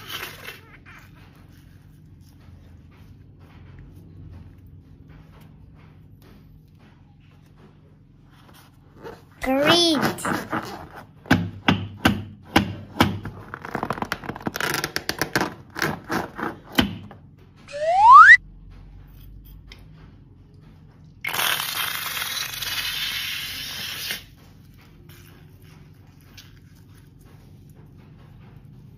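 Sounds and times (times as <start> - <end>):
rubber balloon taps and squeaks: 13.0 - 18.4
rising whistle-like tone: 17.7 - 18.4.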